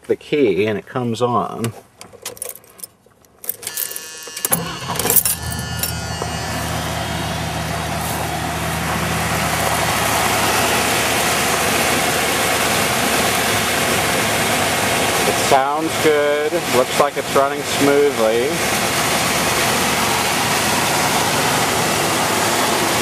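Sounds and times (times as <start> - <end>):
keys jangling: 2.2 - 6.0
car engine cranking and idling: 2.4 - 23.0
ignition key clicking: 3.4 - 5.5.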